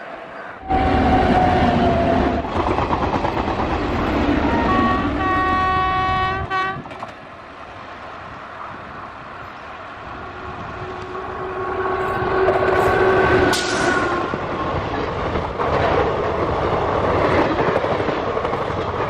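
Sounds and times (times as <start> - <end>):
train rumbling on track: 0.0 - 19.0
multi-tone train horn: 4.3 - 7.0, 10.8 - 14.4.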